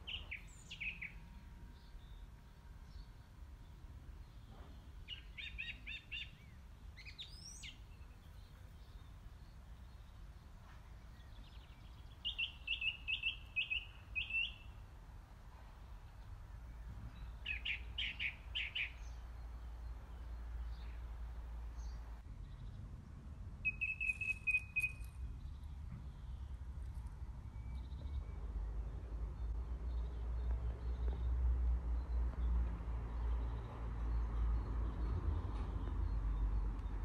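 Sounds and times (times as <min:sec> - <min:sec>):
small birds chirping: 0:00.0 - 0:14.9, 0:15.7 - 0:23.0, 0:23.6 - 0:37.0.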